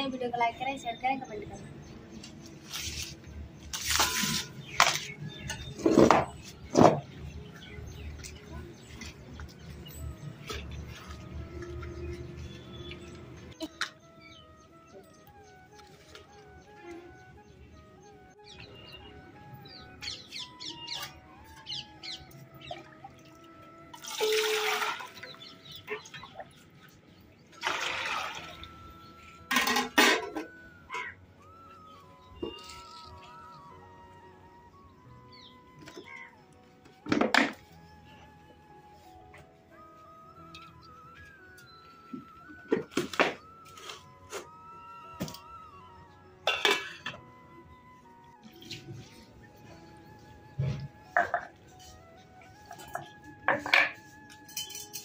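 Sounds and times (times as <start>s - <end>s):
birds chirping faintly: 0.0s - 23.9s, 28.6s - 37.0s
steel plates scraping on concrete: 3.7s - 4.9s
water pouring into steel bucket: 23.9s - 25.4s, 27.6s - 28.8s
steel lid clattering: 29.5s - 30.5s, 46.5s - 47.1s
kindling being handled: 32.4s - 33.5s.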